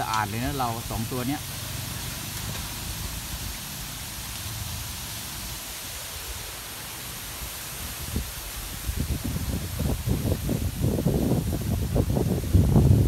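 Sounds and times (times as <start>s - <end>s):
wind buffeting microphone: 7.4s - 13.0s.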